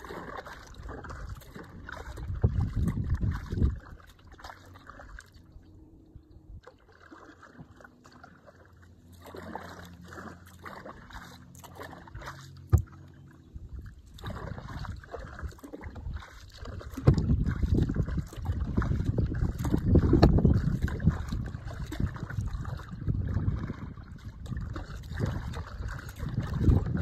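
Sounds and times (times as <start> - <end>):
paddle splashing and dripping water: 0.0 - 27.0
wind buffeting microphone: 0.7 - 4.1, 13.5 - 27.0.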